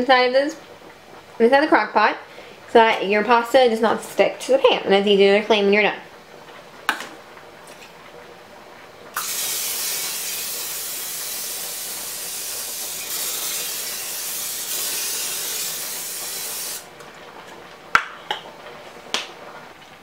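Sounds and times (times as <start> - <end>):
aerosol spray hissing: 9.2 - 16.8.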